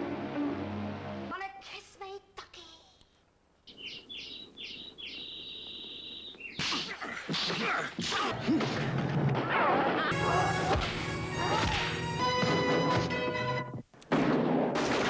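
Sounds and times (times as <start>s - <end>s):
film music: 0.0s - 1.3s, 10.1s - 13.8s
punch whacks: 10.6s - 12.0s.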